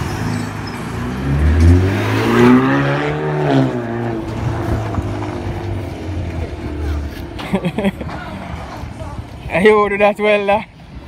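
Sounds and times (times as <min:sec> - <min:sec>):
car engine accelerating past: 0:00.9 - 0:07.4.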